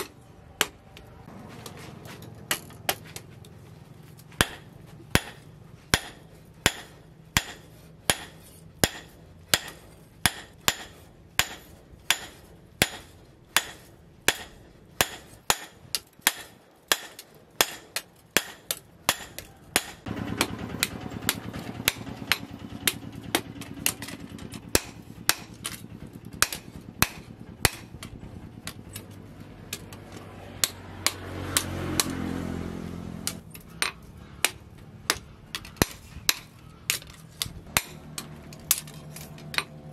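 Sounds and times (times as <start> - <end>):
steady low hum: 0.0 - 31.3
hammer striking hot steel on anvil: 4.4 - 29.0, 30.6 - 32.2, 33.2 - 39.8.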